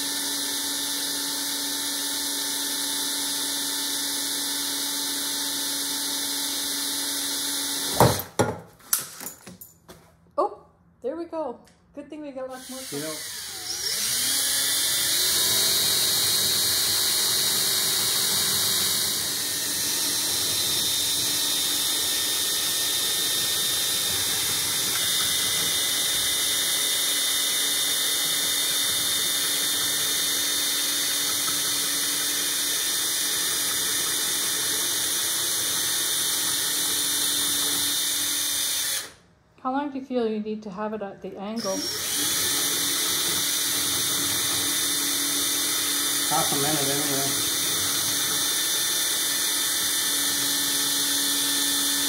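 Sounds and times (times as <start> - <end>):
cordless drill whining: 0.0 - 8.3, 12.5 - 39.2, 41.6 - 52.0
drill bit squealing on china: 12.5 - 22.8, 41.6 - 52.0.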